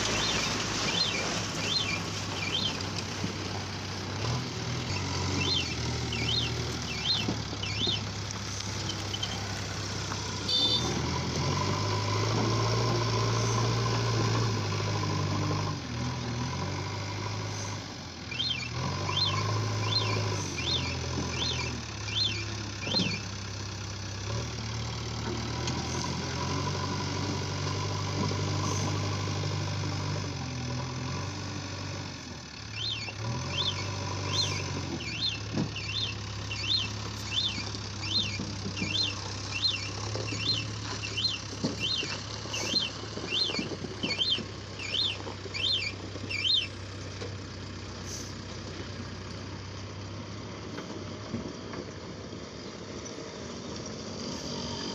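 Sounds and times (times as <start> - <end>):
backhoe diesel engine running: 0.0 - 54.9
repeated high chirp: 4.9 - 8.0, 18.3 - 23.2, 32.7 - 46.8.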